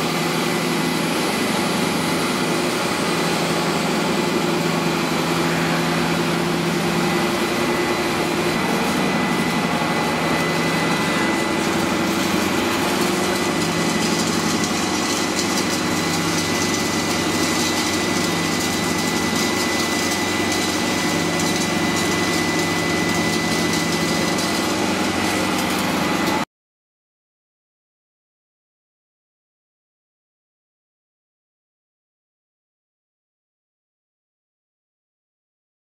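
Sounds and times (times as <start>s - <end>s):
electric motor hum: 0.0s - 26.4s
thin high whine: 0.0s - 26.4s.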